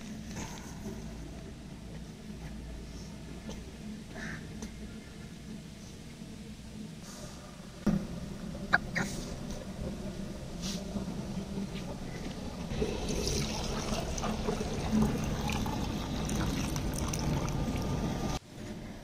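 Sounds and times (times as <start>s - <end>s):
water pouring into clay pot: 12.7s - 18.0s.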